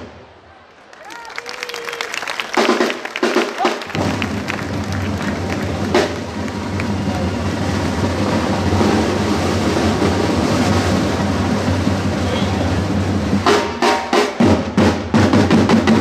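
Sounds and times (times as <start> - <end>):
side drums rolling: 2.4 - 16.0.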